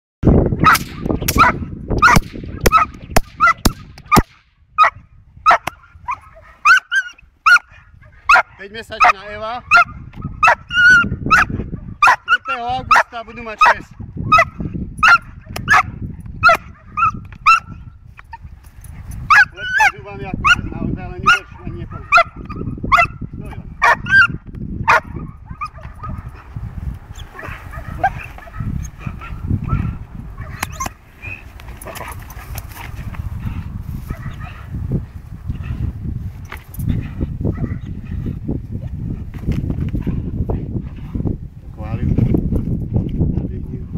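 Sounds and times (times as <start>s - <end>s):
sharp cracks: 0.7s - 4.6s
puppy barking high-pitched: 1.4s - 4.2s, 4.8s - 17.8s, 19.3s - 20.6s, 21.2s - 23.2s, 23.8s - 26.3s, 27.4s - 31.0s
puppy whines and yips: 6.1s - 7.6s, 10.4s - 12.4s.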